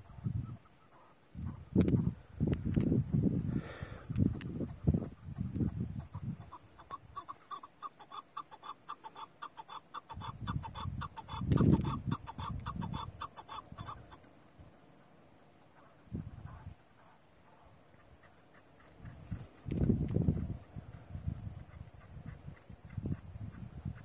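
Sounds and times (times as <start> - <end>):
partridge clucking call: 4.6 - 14.3.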